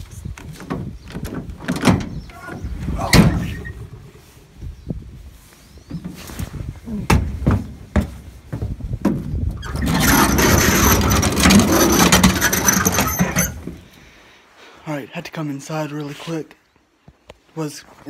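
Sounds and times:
wheels scraping on metal bed: 0:09.5 - 0:13.8
metal clanks and knocks: 0:09.8 - 0:13.8.

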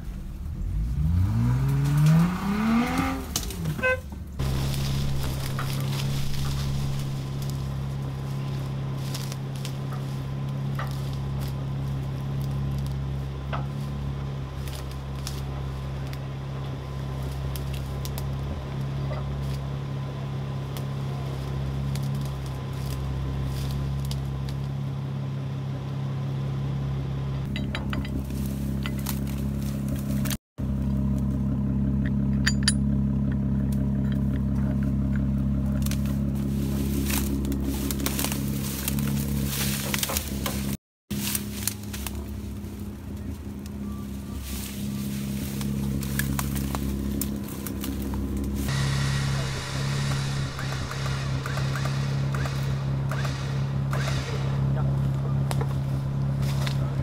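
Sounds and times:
car engine idling: 0:00.0 - 0:40.8, 0:41.4 - 0:57.0.

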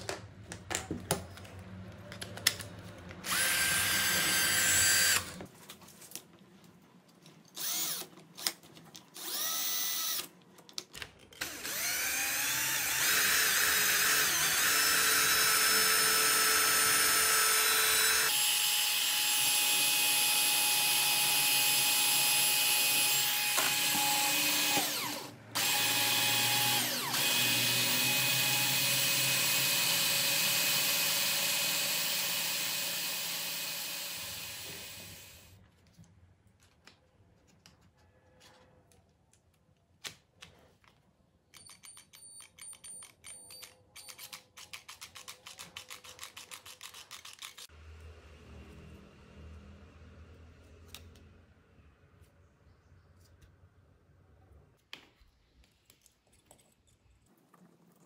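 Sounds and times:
drill motor whining: 0:03.2 - 0:05.4, 0:07.6 - 0:08.1, 0:09.2 - 0:10.3, 0:11.4 - 0:35.5.

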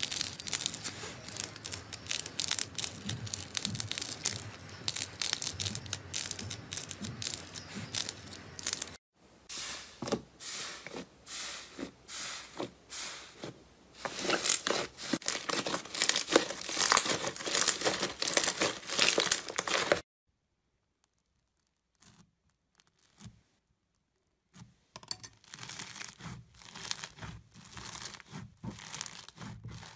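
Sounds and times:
slime crackling and squishing: 0:00.0 - 0:09.0, 0:13.4 - 0:20.0, 0:20.9 - 0:23.4, 0:25.4 - 0:29.9.

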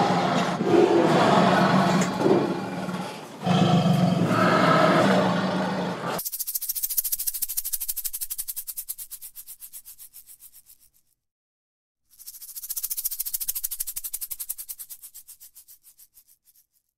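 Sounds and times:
rapid dry rattling: 0:06.2 - 0:11.2, 0:12.1 - 0:16.9.

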